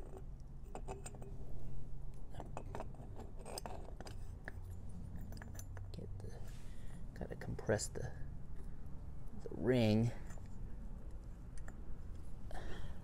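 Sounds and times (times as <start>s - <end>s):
light metallic clicks and scrapes: 0.0s - 1.4s, 2.1s - 7.0s, 10.0s - 12.3s.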